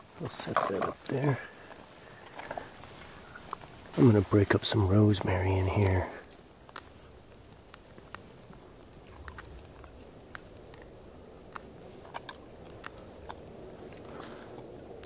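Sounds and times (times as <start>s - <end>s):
faint background hiss: 0.0s - 15.0s
rosemary snapping and crackling: 5.8s - 15.0s.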